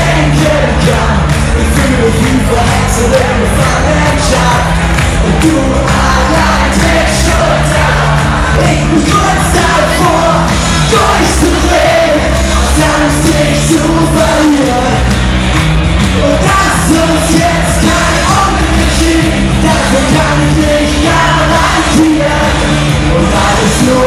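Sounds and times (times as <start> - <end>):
audience clapping: 0.0 - 24.0
live pop band with male singer: 0.0 - 24.0
audience shouting along: 2.8 - 14.8.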